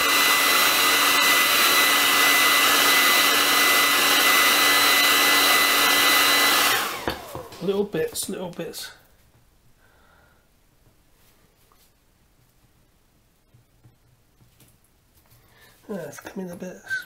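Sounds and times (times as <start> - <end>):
hair dryer whining: 0.0 - 8.6.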